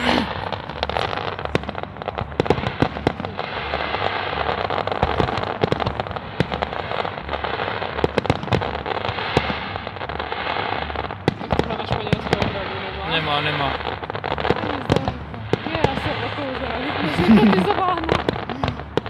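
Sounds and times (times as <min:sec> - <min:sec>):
continuous crackling hiss: 0:00.0 - 0:19.0
fireworks bangs and crackles: 0:00.0 - 0:19.0.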